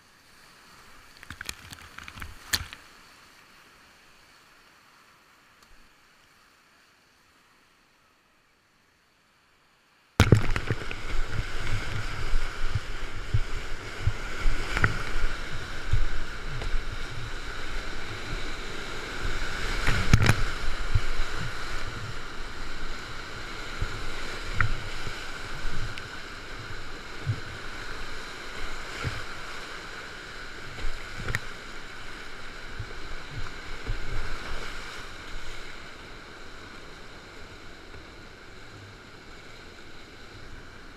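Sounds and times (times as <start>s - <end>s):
whitewater rapids rushing: 10.2s - 38.4s
water splashing against boat: 10.2s - 40.9s.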